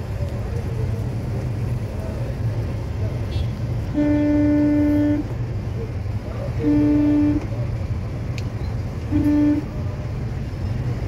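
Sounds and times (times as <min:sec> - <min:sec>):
idling traffic rumble: 0:00.0 - 0:11.0
car horn honking: 0:03.3 - 0:05.4, 0:06.6 - 0:07.6, 0:09.1 - 0:09.9.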